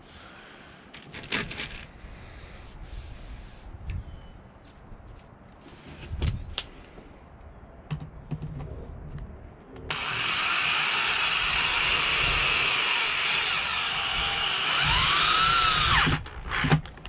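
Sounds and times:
electric drill whining: 9.9 - 16.9.

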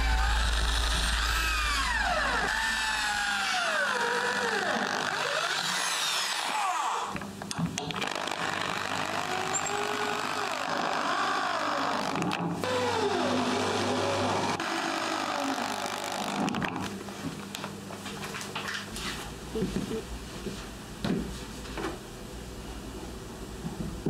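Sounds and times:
cordless drill whining: 8.0 - 16.6.

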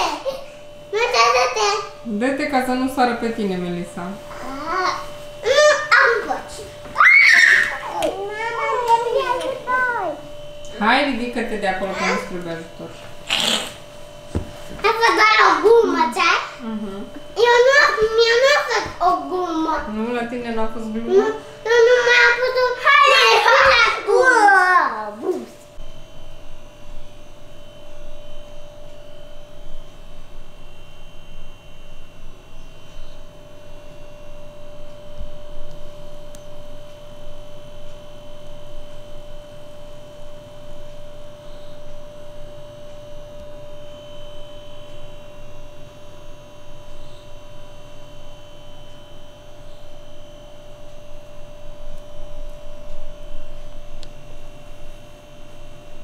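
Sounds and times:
constant mid-pitched tone: 0.0 - 56.0.

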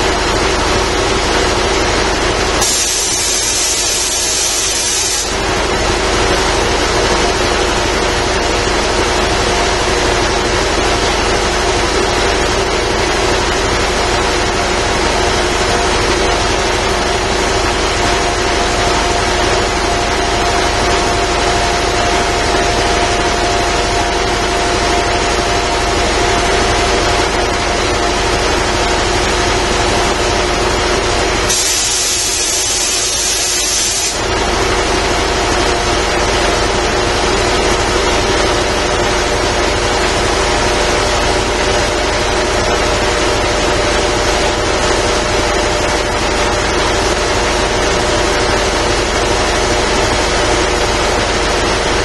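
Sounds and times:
air compressor running: 0.0 - 52.0
high hiss: 2.6 - 5.3, 31.5 - 34.2.

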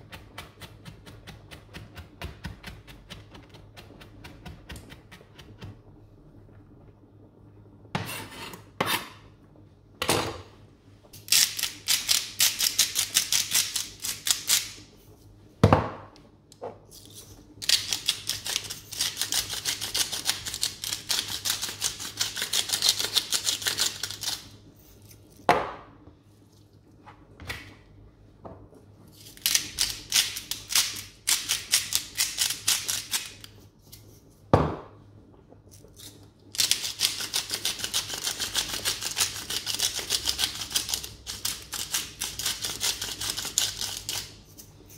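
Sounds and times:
knife scraping cutting board: 8.0 - 9.2
knock on cutting board: 15.6 - 16.1, 34.6 - 34.9.

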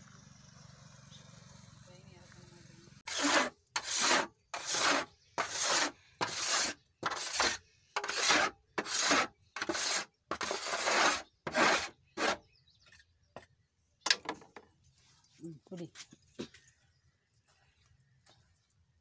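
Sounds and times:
scraper rasping against metal pan: 3.1 - 12.4.

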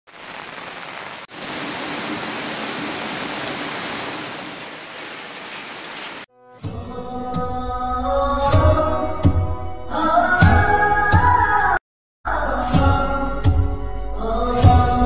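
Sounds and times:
water hissing: 0.1 - 6.3
music: 6.3 - 15.0.

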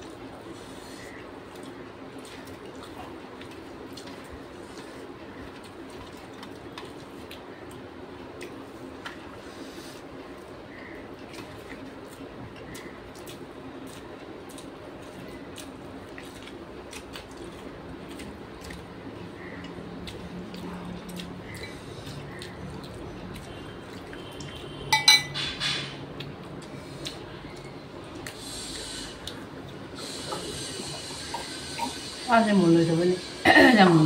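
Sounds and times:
wet clicks of eating: 1.0 - 9.4, 10.2 - 24.9, 26.0 - 28.6, 29.2 - 29.8.

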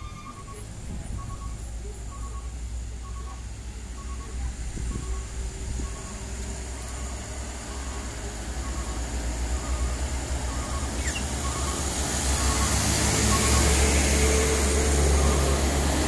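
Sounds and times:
diesel truck engine under load: 0.0 - 16.0.

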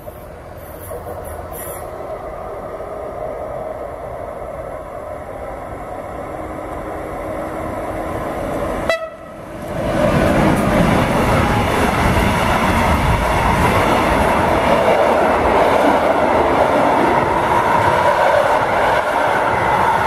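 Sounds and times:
train wheels rumbling on rail: 0.0 - 20.0
train horn note: 8.8 - 9.5.

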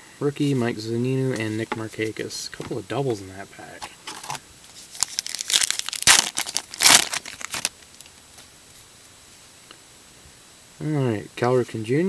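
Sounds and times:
wrapper tearing and crinkling: 4.1 - 8.2.

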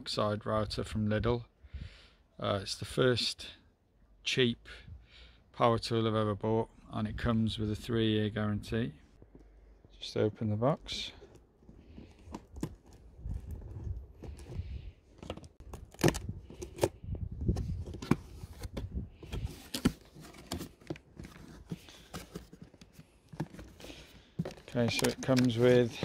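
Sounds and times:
cardboard tearing: 15.2 - 17.0
handling knocks and clicks: 17.6 - 26.0.

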